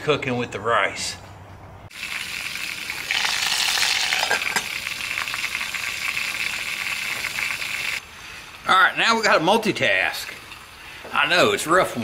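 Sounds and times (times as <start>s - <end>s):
chicken sizzling in oil: 1.9s - 8.7s.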